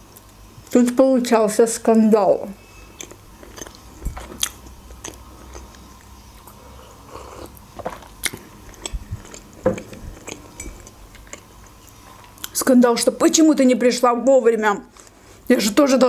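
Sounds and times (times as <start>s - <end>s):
soft chewing: 2.8s - 12.6s.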